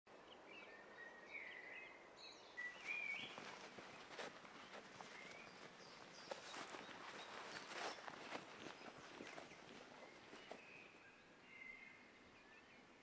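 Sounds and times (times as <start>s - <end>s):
songbird chirping: 0.1s - 13.0s
footsteps in grass: 2.6s - 11.0s.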